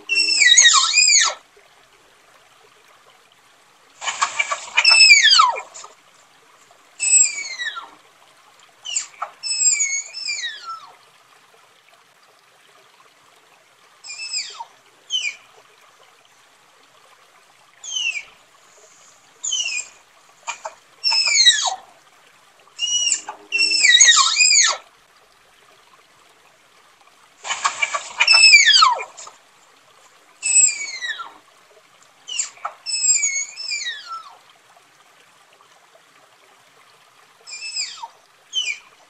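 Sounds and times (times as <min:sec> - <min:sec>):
tapir whistling squeals: 0:00.0 - 0:01.4, 0:04.2 - 0:05.8, 0:07.0 - 0:07.9, 0:08.9 - 0:10.8, 0:19.4 - 0:21.8, 0:22.8 - 0:24.8, 0:27.7 - 0:29.1, 0:30.4 - 0:31.3, 0:32.3 - 0:34.3, 0:37.5 - 0:38.8.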